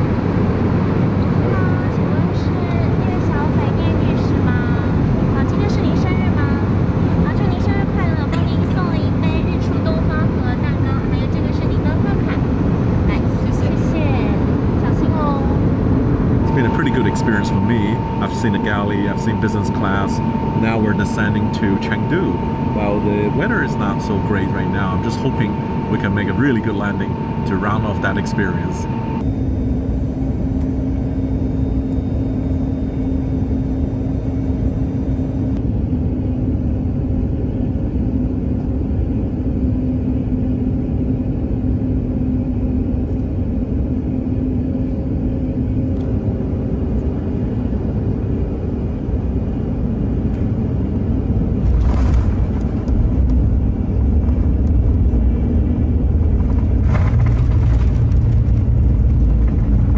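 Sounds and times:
airliner cabin engine rumble: 0.0 - 59.9
constant cabin hum: 0.0 - 59.9
aircraft touching down and rolling: 51.5 - 59.9.

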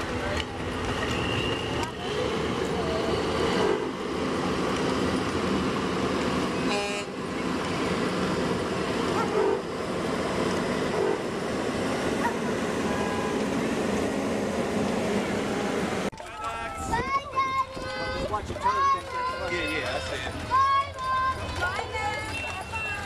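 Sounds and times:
truck engines running: 0.0 - 23.0
vehicle horn toots: 6.7 - 7.2, 12.8 - 13.4.

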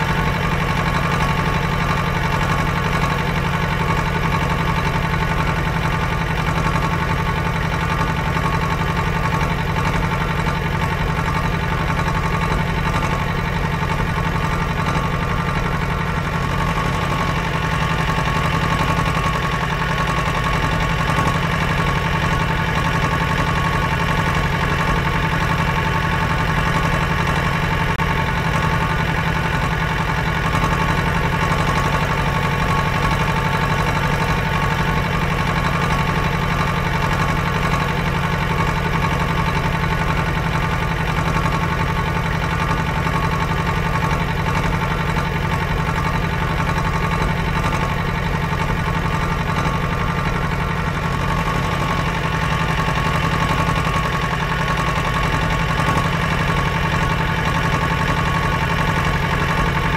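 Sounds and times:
engine running: 0.0 - 59.9.

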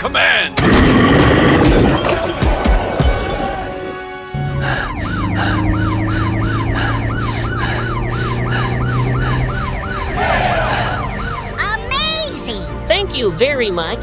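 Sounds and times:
police siren wailing: 4.0 - 12.4.

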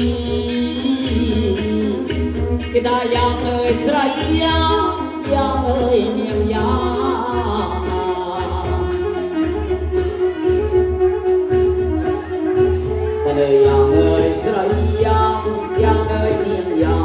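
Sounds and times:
person singing into microphone: 0.0 - 9.6, 13.1 - 17.0
folk band beat: 0.0 - 17.0.

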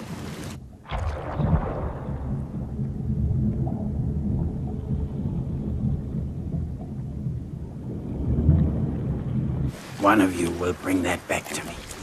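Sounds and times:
muffled underwater rumble: 0.5 - 10.0.

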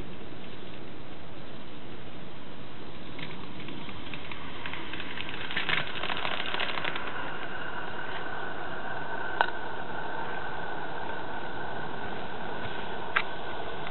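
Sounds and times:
faint steady high tone: 0.0 - 13.9
model steam locomotive ticking: 3.2 - 8.0.

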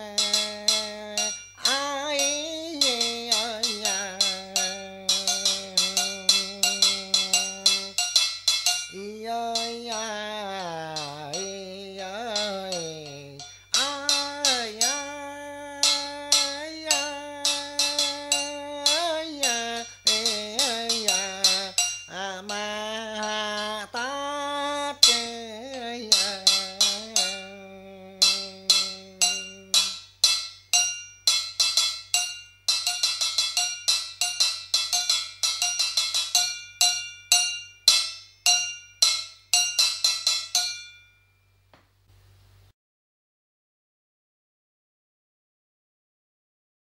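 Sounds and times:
bending melodic line: 0.0 - 30.0
sharp percussion strikes: 0.0 - 41.2.

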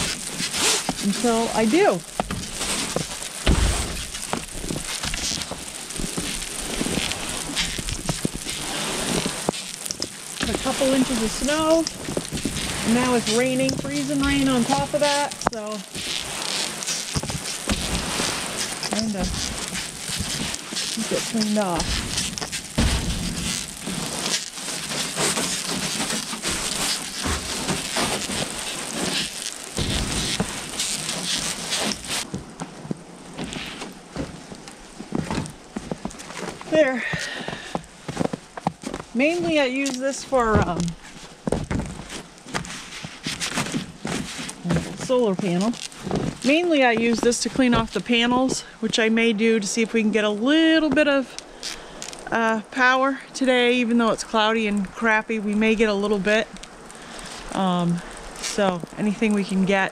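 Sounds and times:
brush scraping wet snow: 0.0 - 52.8
freezing rain pattering: 0.0 - 59.9
low thump: 3.4 - 4.0.

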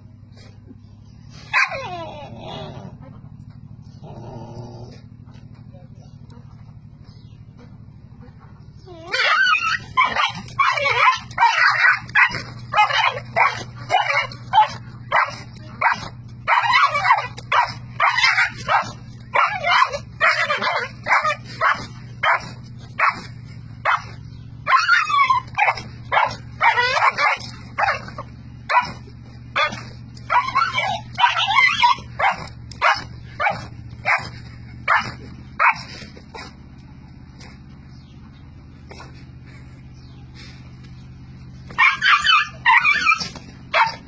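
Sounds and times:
small dog yelping and whimpering: 1.5 - 2.9, 8.8 - 22.4, 24.7 - 28.0, 29.6 - 34.2, 41.8 - 44.0.

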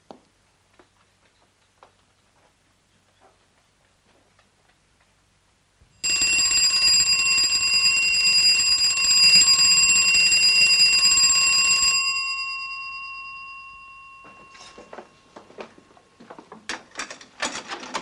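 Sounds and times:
alarm clock ticking: 6.0 - 15.1
alarm clock bell ringing: 6.0 - 15.6.

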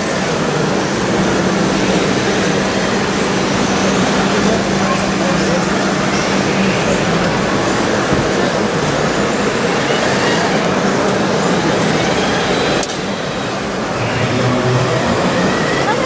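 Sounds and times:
model bulldozer pushing soil: 0.0 - 16.0
low hum: 13.8 - 16.0.

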